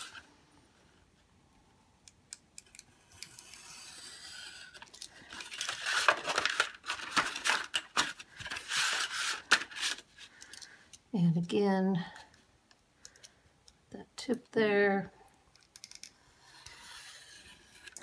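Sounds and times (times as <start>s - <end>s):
stiff paper rustling and crinkling: 4.8s - 10.4s
craft knife scratching through paper: 5.4s - 10.1s, 16.5s - 18.0s.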